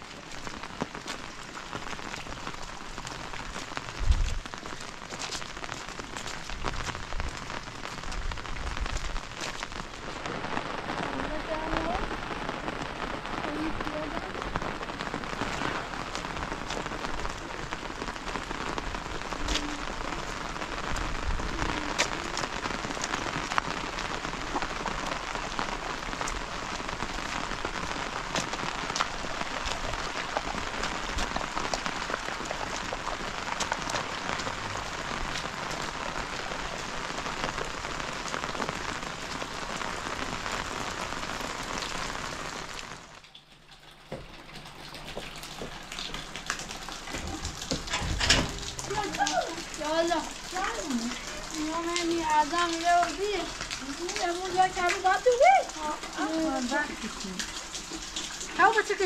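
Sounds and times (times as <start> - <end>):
rain falling on gravel: 0.0 - 59.0
raindrops ticking close by: 0.0 - 59.0.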